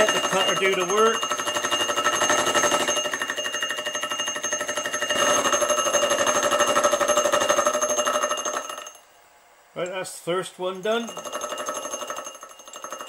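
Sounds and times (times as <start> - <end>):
milling machine whine and chatter: 0.0 - 8.8.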